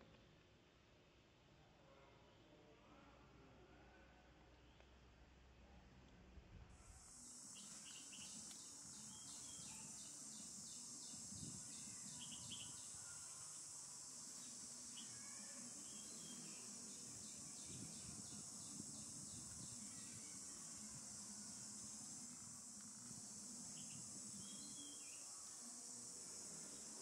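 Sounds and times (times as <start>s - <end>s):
faint regular pulsing: 6.8s - 27.0s
insects droning: 6.8s - 27.0s.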